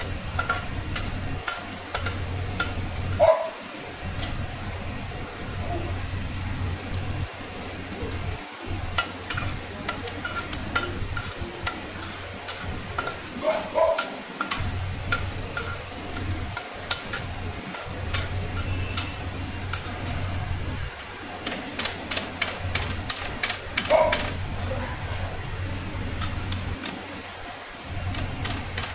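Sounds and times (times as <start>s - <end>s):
metal skimmer tapping a pan: 0.0s - 3.3s, 7.9s - 24.4s
peanuts sizzling in hot oil: 0.0s - 28.9s
steady low hum: 0.0s - 28.9s.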